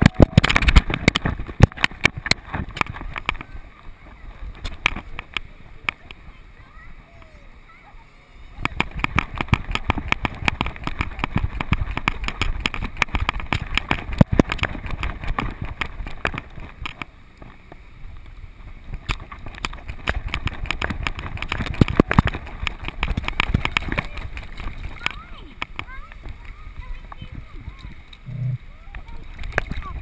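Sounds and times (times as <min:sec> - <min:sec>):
water splashing around dog's paws: 0:08.6 - 0:17.8, 0:18.8 - 0:28.2, 0:28.8 - 0:30.0.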